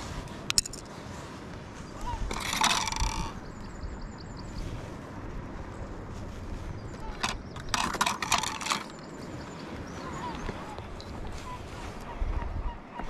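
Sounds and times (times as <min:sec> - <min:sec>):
gull calling: 0:01.9 - 0:03.6, 0:09.9 - 0:13.0.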